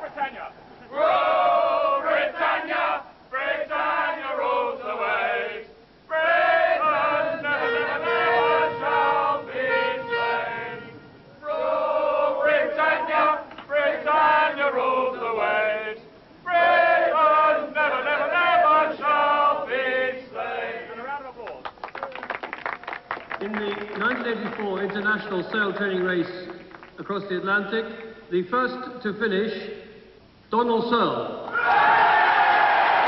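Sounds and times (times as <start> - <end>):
group of voices singing: 0.9 - 20.9.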